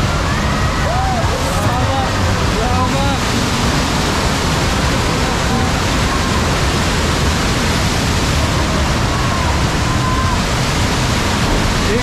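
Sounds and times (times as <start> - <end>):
loud rushing noise: 0.0 - 12.0
low rumble: 0.0 - 12.0.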